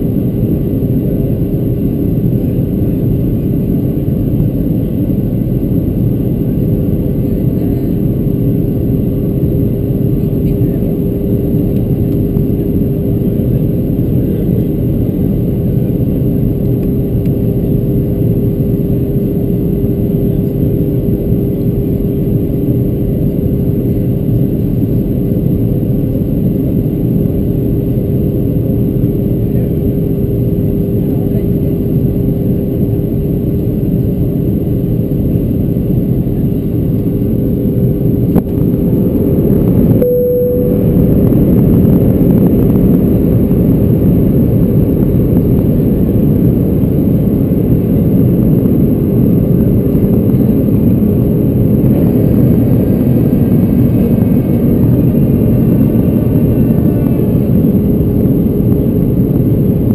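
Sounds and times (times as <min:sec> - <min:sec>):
steady hum: 0:34.9 - 0:59.9
jet engines running: 0:40.6 - 0:59.9.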